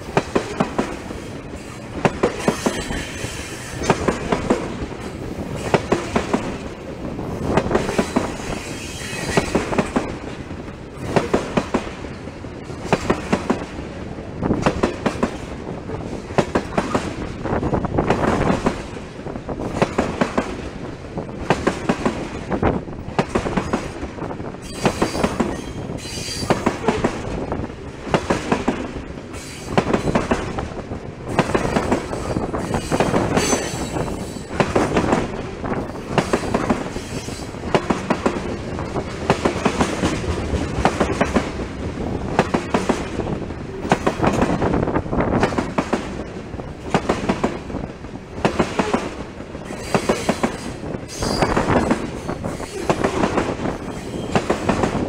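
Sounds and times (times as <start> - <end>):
train wheels clicking over rail joints: 0.0 - 55.0
faint high wheel squeal: 24.6 - 26.6, 49.7 - 51.6, 53.8 - 54.4.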